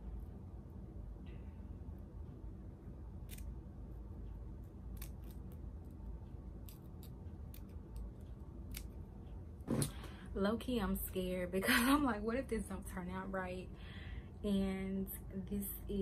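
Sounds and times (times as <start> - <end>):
scissors snipping: 3.2 - 3.5, 4.9 - 5.6, 8.7 - 9.0.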